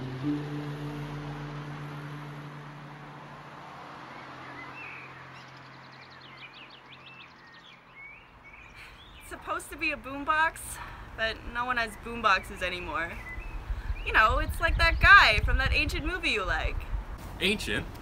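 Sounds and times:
birds chirping: 3.9 - 16.6.

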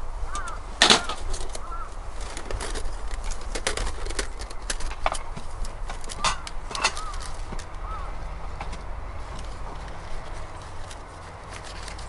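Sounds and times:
metal cookware clicking and knocking: 6.1 - 7.2.

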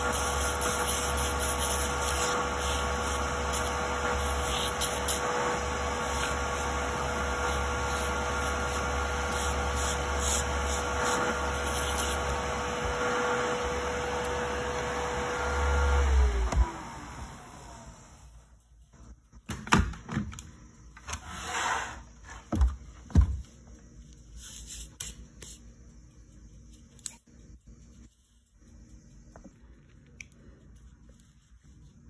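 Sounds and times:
suction fan humming and whining: 0.0 - 32.0.

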